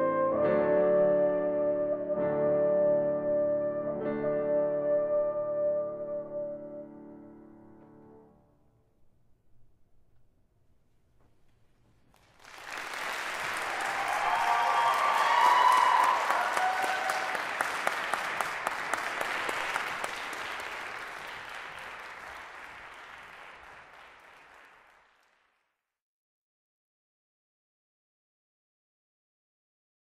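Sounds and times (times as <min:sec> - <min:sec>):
audience applauding: 0:12.1 - 0:25.6
audience cheering: 0:12.4 - 0:25.0.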